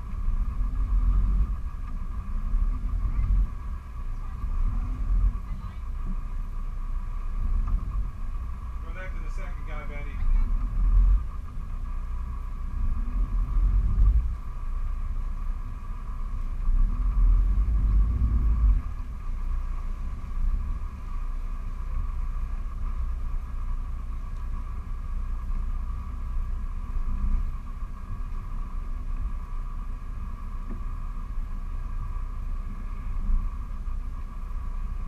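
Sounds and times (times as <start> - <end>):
boat engines rumbling: 0.0 - 35.0
steady high whine: 0.0 - 35.0.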